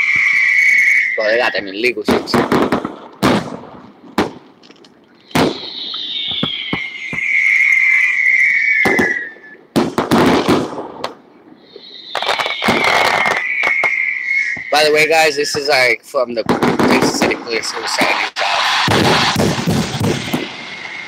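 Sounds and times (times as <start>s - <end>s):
descending firework whistle: 0.0s - 2.0s, 5.2s - 10.8s, 11.6s - 16.0s, 16.9s - 21.0s.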